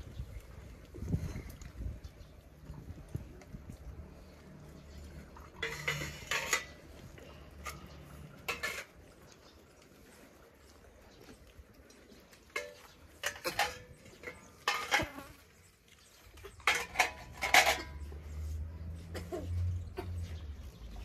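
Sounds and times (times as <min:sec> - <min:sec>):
metal plates and cups clattering: 0:05.2 - 0:09.0, 0:12.5 - 0:15.2, 0:16.4 - 0:18.3.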